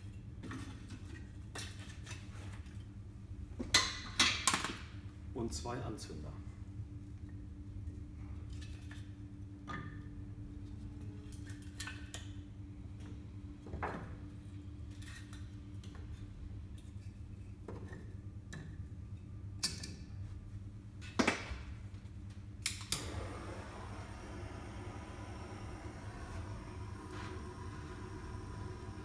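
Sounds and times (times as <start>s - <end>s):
steady low hum: 4.8s - 29.0s.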